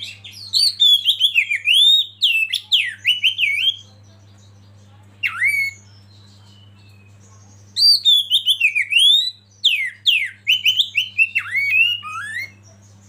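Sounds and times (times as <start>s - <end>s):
bird singing whistled notes: 5.2s - 12.7s.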